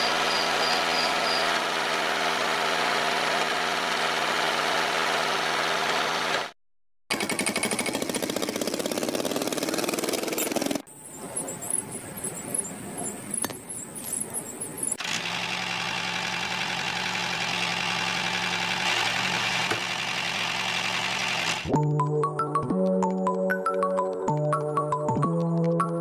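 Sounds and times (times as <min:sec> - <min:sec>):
small toy motor buzzing: 0:00.0 - 0:01.7.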